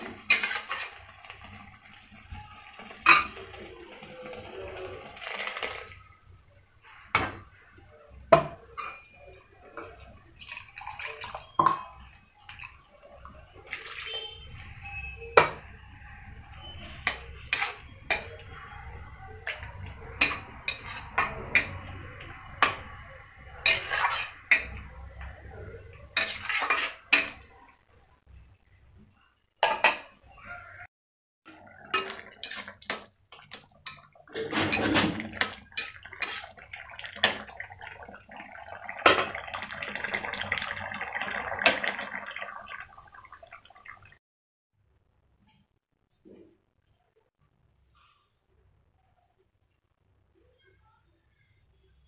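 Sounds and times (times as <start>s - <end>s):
metal spoon scraping a pan: 0.0s - 1.7s, 16.6s - 18.7s, 19.4s - 25.3s, 26.0s - 27.5s, 31.8s - 37.5s
liquid sloshing: 31.5s - 44.2s.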